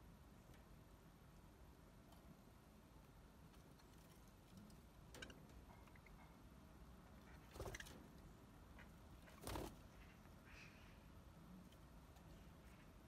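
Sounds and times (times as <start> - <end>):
birds rustling on perches: 3.1 - 6.1, 7.1 - 13.0.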